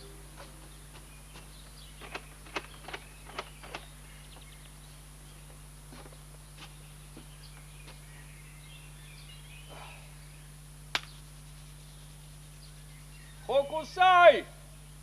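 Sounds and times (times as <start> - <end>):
steady low hum: 0.0 - 15.0
faint bird chirps: 6.7 - 13.6.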